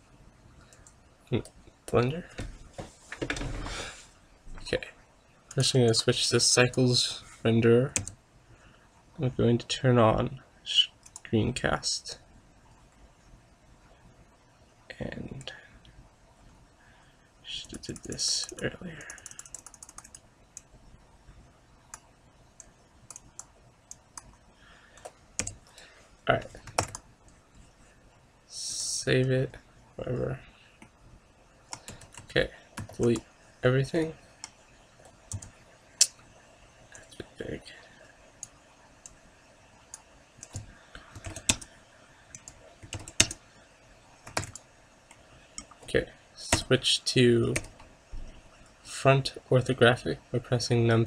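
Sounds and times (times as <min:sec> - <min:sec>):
computer mouse clicking: 0:00.6 - 0:02.0, 0:11.0 - 0:11.3, 0:17.6 - 0:20.8, 0:21.9 - 0:24.4, 0:25.0 - 0:25.8, 0:26.6 - 0:27.4, 0:31.7 - 0:33.3, 0:34.4 - 0:36.2, 0:39.9 - 0:43.4, 0:44.2 - 0:45.9.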